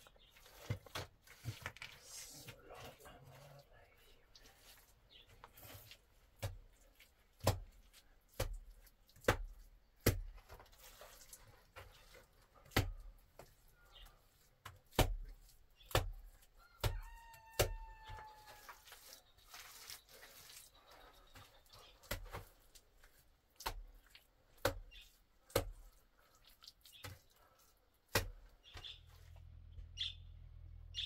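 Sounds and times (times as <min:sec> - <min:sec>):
knocks and slaps of wet mud: 0:00.3 - 0:01.9, 0:06.2 - 0:29.0
chicken calling: 0:16.6 - 0:18.9.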